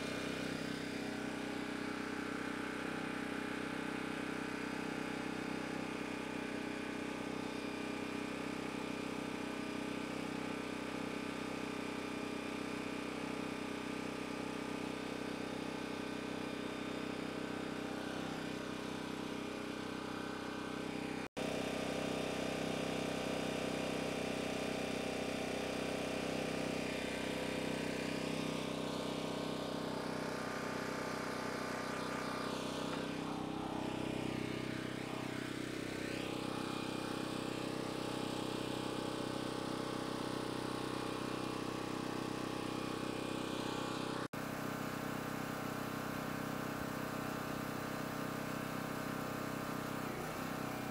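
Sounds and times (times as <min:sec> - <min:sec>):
generator engine running: 0:00.0 - 0:50.9.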